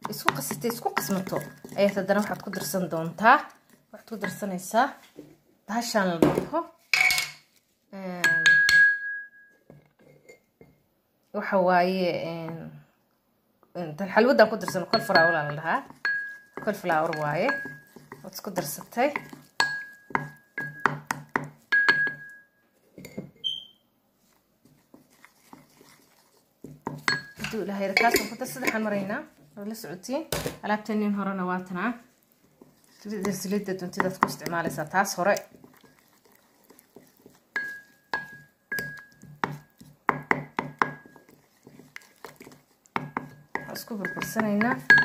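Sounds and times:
wooden spoon knocking ceramic bowl: 0:00.0 - 0:03.0, 0:04.2 - 0:04.5, 0:08.2 - 0:09.5, 0:14.4 - 0:22.4, 0:26.6 - 0:28.9, 0:33.2 - 0:35.9, 0:36.7 - 0:45.0
wet mixture being stirred: 0:00.0 - 0:06.0, 0:06.8 - 0:09.0, 0:13.7 - 0:45.0.

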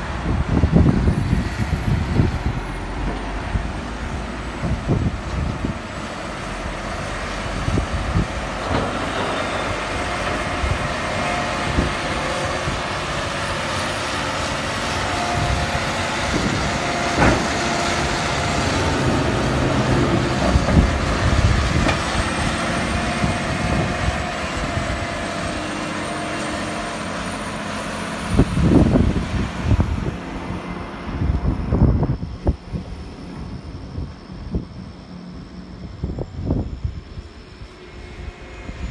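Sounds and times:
wind rumble on microphone: 0:00.0 - 0:26.8, 0:28.0 - 0:38.9
tractor diesel engine under load: 0:00.0 - 0:38.9.

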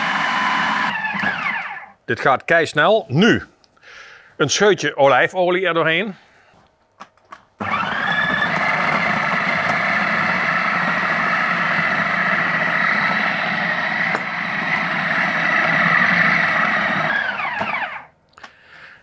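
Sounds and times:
kitchen mixer motor whine: 0:00.0 - 0:01.9, 0:07.6 - 0:18.1.

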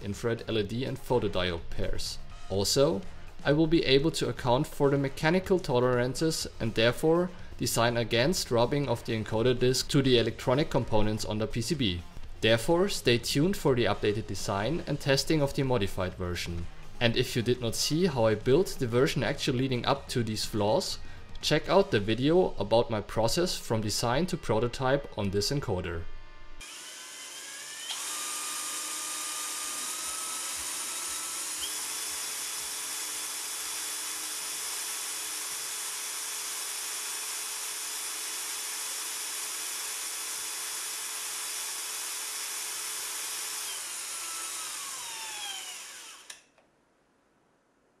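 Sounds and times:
small electric motor whining: 0:26.6 - 0:46.6.

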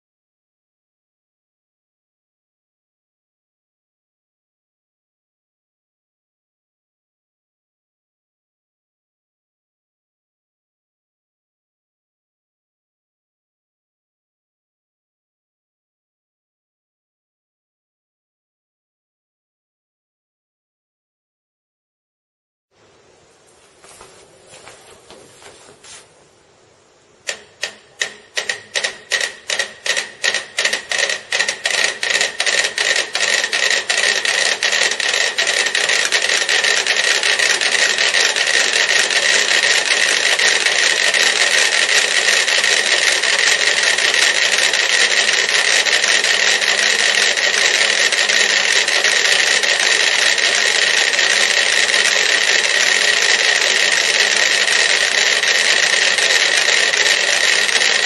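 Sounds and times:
clockwork metronomes ticking: 0:27.3 - 0:58.0.

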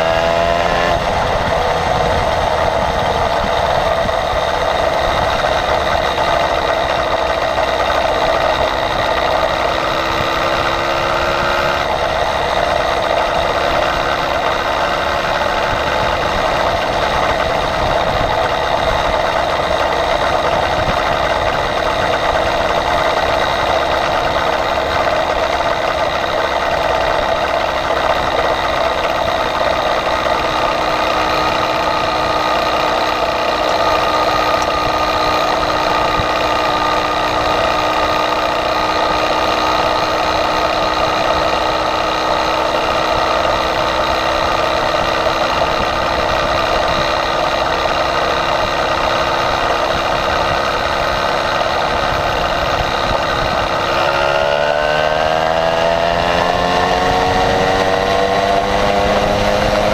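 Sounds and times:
motorized bicycle engine running: 0:00.0 - 0:59.9.

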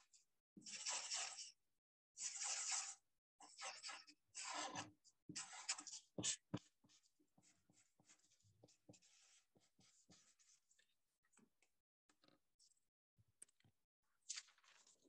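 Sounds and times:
marker scratching on paper: 0:00.6 - 0:01.6, 0:02.2 - 0:10.8.

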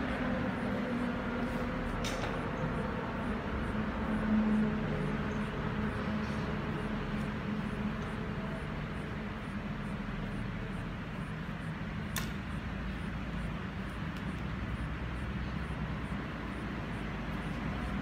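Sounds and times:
sharp click: 0:12.1 - 0:12.4.

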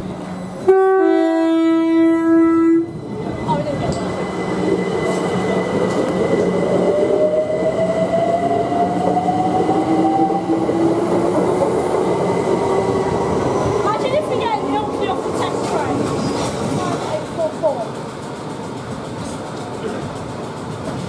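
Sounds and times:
train wheels rumbling: 0:00.0 - 0:21.0
train horn: 0:00.6 - 0:03.0.

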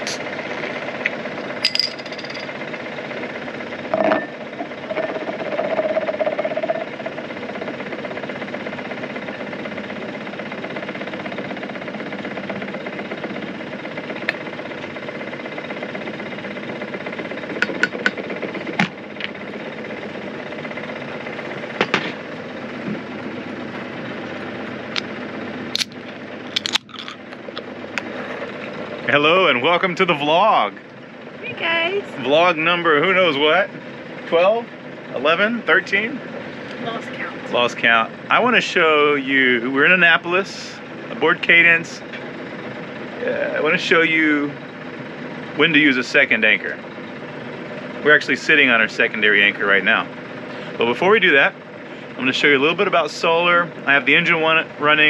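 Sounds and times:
boat engine idling: 0:00.0 - 0:55.0
can pull tab opening: 0:25.8 - 0:26.0, 0:26.6 - 0:27.2
sharp clicks: 0:25.8 - 0:28.1.

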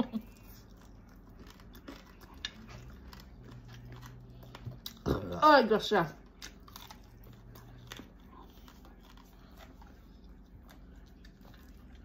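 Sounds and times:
person chewing food: 0:00.0 - 0:05.4, 0:06.2 - 0:12.0.

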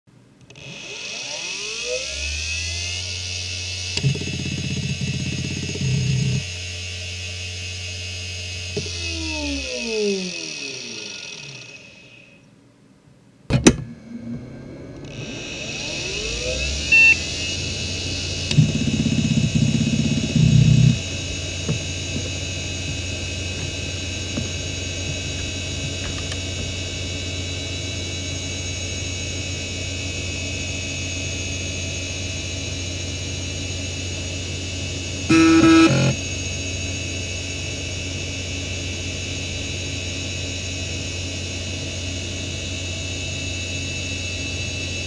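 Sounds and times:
hard drive whine: 0:00.4 - 0:12.6, 0:13.5 - 0:45.0
hard drive seek chatter: 0:02.8 - 0:06.6, 0:15.1 - 0:28.1, 0:35.3 - 0:36.4.

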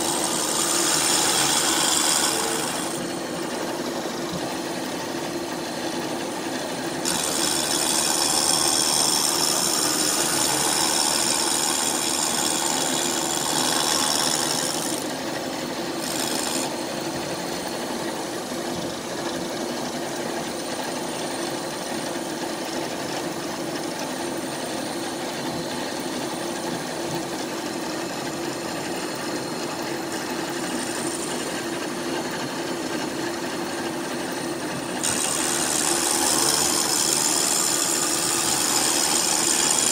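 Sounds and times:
power tool grinding metal: 0:00.0 - 0:05.4, 0:06.6 - 0:17.8, 0:28.2 - 0:39.9.

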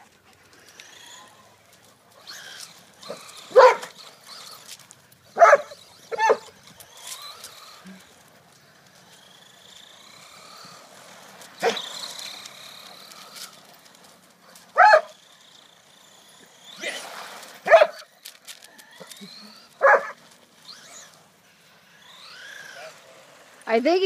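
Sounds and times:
toy car motor whine: 0:00.0 - 0:24.0
dog barking: 0:03.5 - 0:03.9, 0:05.4 - 0:06.5, 0:14.8 - 0:15.2, 0:17.6 - 0:18.0, 0:19.8 - 0:20.2.

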